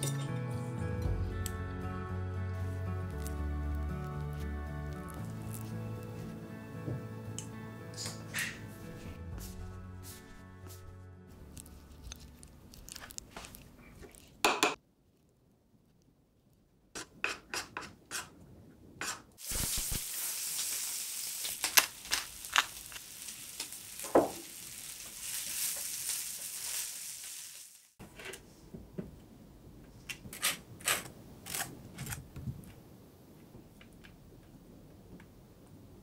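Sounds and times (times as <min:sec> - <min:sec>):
onion and bacon sizzling: 0:19.4 - 0:28.0.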